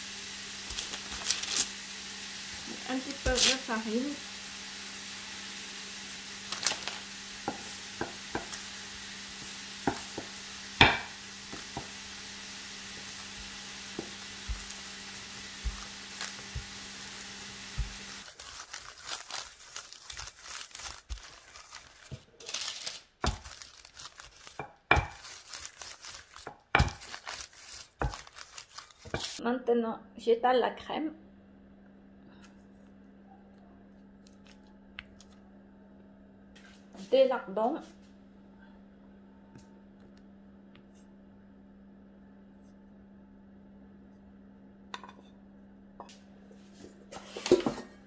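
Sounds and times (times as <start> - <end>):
lardons sizzling in a pan: 0.0 - 29.4
baking paper crinkling: 0.6 - 1.9, 2.9 - 4.1, 6.4 - 7.8, 13.0 - 29.4, 46.7 - 48.0
low steady hum: 28.8 - 48.0.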